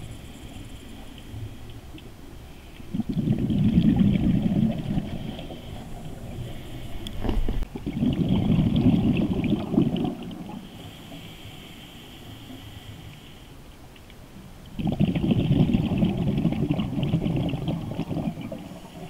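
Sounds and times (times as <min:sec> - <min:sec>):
underwater regulator bubbles: 0:02.8 - 0:10.6, 0:14.8 - 0:19.0.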